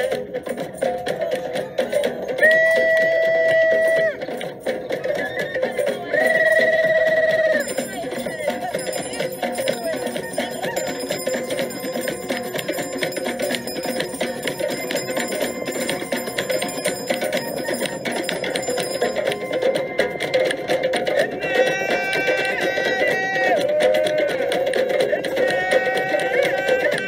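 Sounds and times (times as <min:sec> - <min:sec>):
hand drums playing fast rhythm: 0:00.0 - 0:27.0
bell-like ringing: 0:03.7 - 0:23.0.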